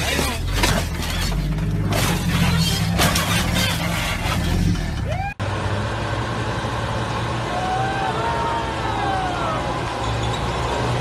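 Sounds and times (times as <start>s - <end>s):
vehicle crashing impacts: 0.0s - 5.1s.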